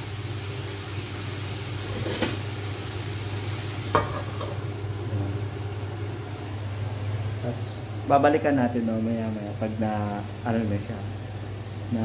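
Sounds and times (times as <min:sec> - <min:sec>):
steady low hum: 0:02.6 - 0:12.0.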